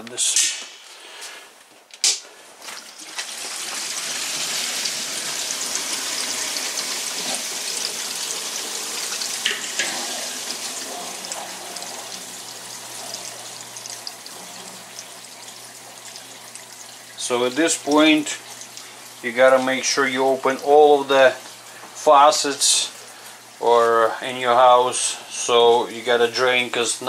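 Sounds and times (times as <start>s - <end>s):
water rushing through pipes: 2.7s - 23.7s.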